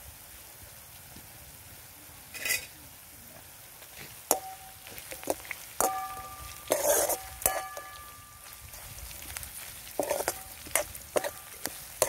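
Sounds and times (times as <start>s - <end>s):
food sizzling in oil: 0.0s - 12.0s
metal spatula knocking on pan: 4.3s - 4.8s, 5.8s - 8.2s.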